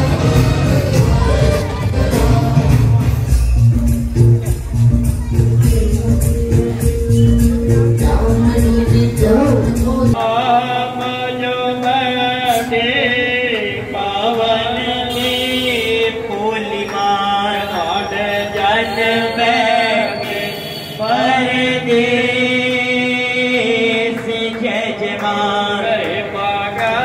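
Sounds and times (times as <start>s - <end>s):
held accompanying notes: 0.9s - 10.2s
person chanting devotional song: 4.5s - 27.0s.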